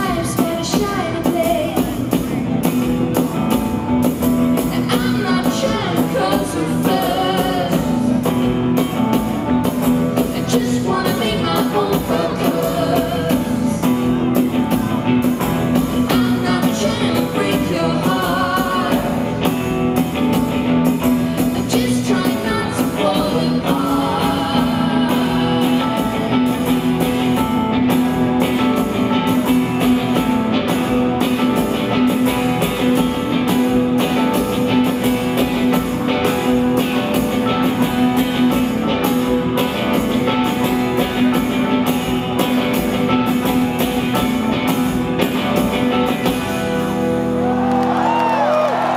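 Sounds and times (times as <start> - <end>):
woman singing: 0.0 - 2.2, 4.6 - 8.2, 10.2 - 13.8, 16.0 - 19.3, 21.4 - 26.3
live rock band playing: 0.0 - 48.9.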